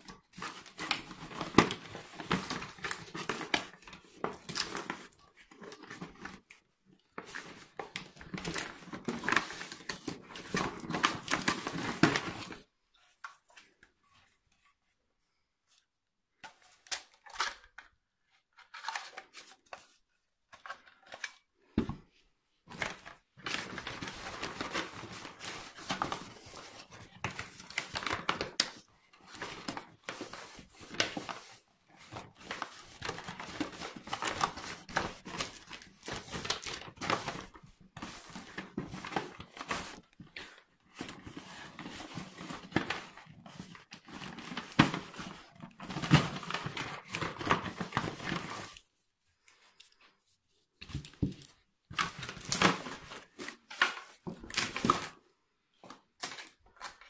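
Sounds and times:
packaging rustling and crinkling: 0.0s - 6.6s, 7.2s - 12.7s, 22.7s - 48.9s, 50.8s - 55.2s.

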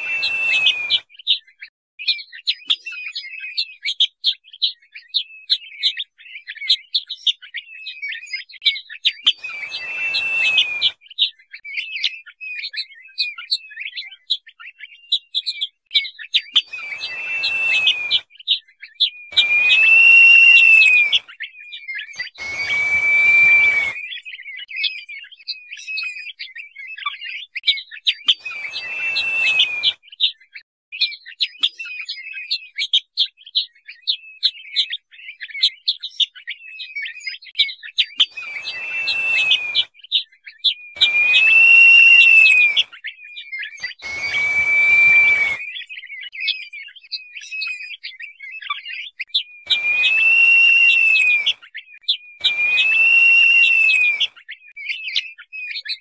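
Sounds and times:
long whistled bird notes: 0.0s - 1.4s, 9.1s - 12.6s, 16.0s - 27.0s, 27.7s - 30.3s, 38.0s - 55.8s
quick high bird chirps: 0.0s - 1.4s, 9.2s - 11.0s, 16.5s - 18.3s, 19.3s - 21.2s, 22.2s - 24.3s, 28.3s - 30.2s, 38.2s - 39.9s, 41.0s - 42.9s, 43.8s - 45.9s, 49.7s - 51.6s, 52.4s - 54.3s.

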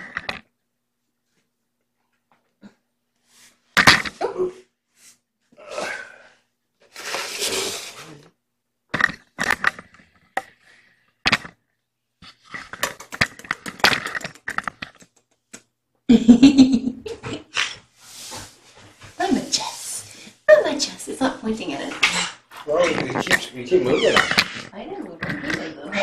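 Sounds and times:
sharp clicks and knocks: 12.7s - 15.7s.

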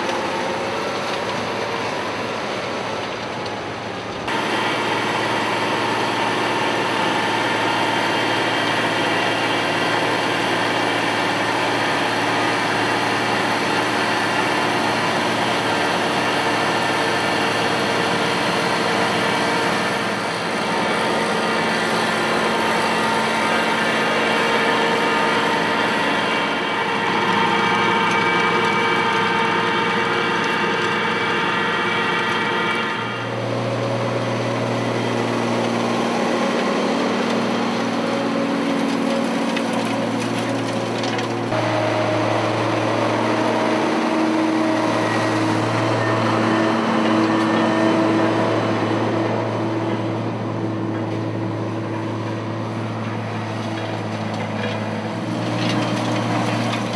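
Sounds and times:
tractor engines running: 0.0s - 56.9s
high whine: 4.2s - 39.3s, 39.9s - 56.6s.

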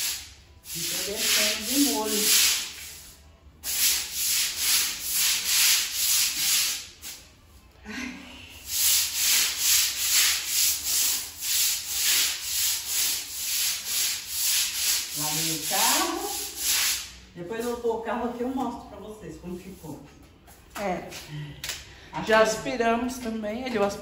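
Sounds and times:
broom scrubbing wet tile floor: 0.0s - 7.3s, 8.6s - 18.6s.

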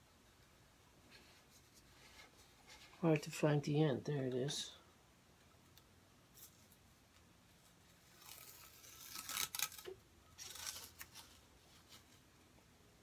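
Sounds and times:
masking tape peeling off wood: 8.0s - 11.4s.

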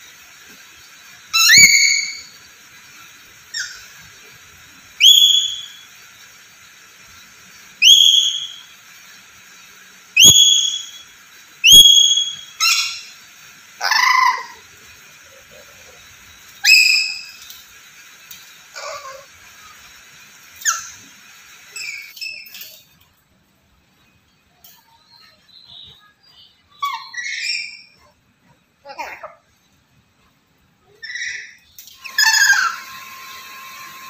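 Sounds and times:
parrot shrill rising whistles: 1.3s - 2.4s, 3.5s - 3.9s, 5.0s - 5.9s, 7.8s - 8.8s, 10.2s - 13.2s, 13.8s - 14.7s, 16.6s - 17.4s, 20.6s - 21.0s, 26.8s - 28.0s, 31.0s - 33.0s.

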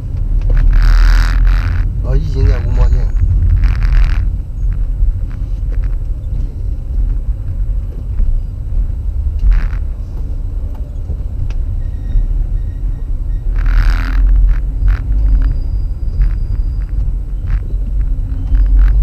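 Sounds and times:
car engine and road noise: 0.0s - 19.0s
faint ticks: 0.1s - 11.6s, 13.4s - 19.0s
short noise: 0.5s - 6.7s.

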